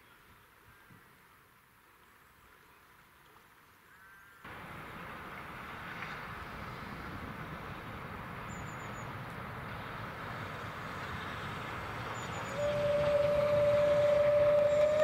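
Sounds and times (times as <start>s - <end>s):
steam train rumbling: 4.5s - 15.0s
bird chirping: 12.0s - 13.1s.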